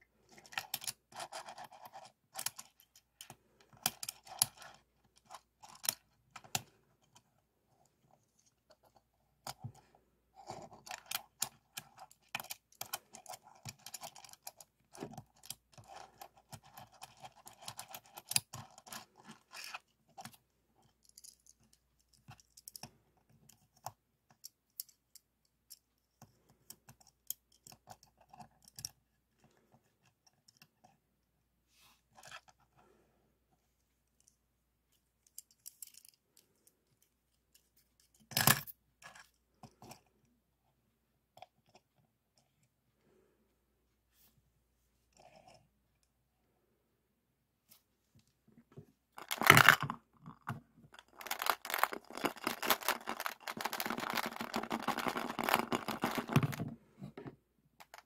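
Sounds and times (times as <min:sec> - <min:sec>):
plastic toy cars clicking: 0:00.3 - 0:07.2, 0:10.4 - 0:29.0, 0:35.2 - 0:36.8, 0:49.2 - 0:56.7, 0:57.8 - 0:58.0.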